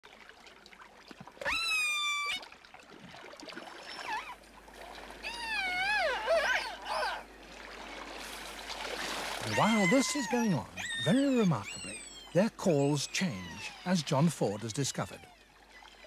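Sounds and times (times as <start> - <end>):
killer whale calls underwater: 5.2 - 7.3, 9.4 - 15.6.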